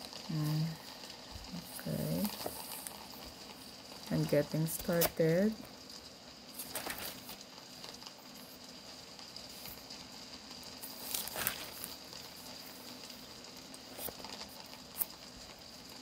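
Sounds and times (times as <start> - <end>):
faint steady hum: 0.0 - 16.0
paper pages rustling: 6.6 - 7.4, 10.8 - 12.0, 13.9 - 15.1.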